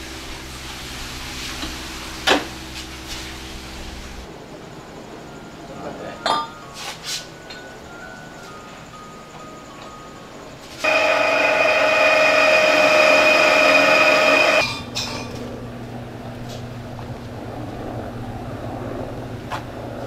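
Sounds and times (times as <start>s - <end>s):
drill press whining: 10.8s - 14.7s
low hum: 10.8s - 20.0s.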